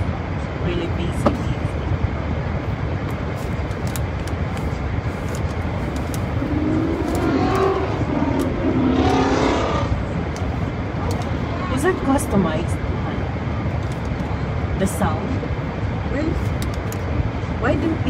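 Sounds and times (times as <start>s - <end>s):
road rumble in car cabin: 0.0s - 18.0s
loud car exhaust droning: 4.8s - 13.5s.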